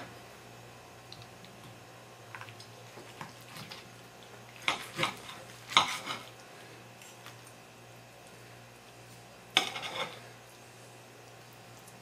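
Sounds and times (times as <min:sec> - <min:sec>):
knife scraping on plate: 0:04.7 - 0:06.3, 0:09.6 - 0:10.2.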